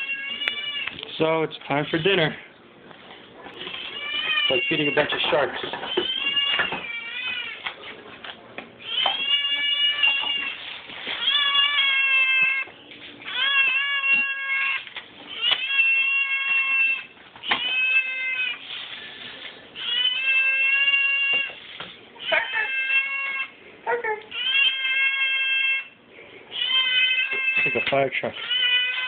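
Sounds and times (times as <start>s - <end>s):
cat meowing: 0.0s - 1.0s, 3.6s - 5.3s, 5.9s - 7.7s, 8.8s - 12.7s, 13.3s - 18.7s, 19.8s - 21.5s, 22.2s - 23.5s, 24.3s - 29.0s.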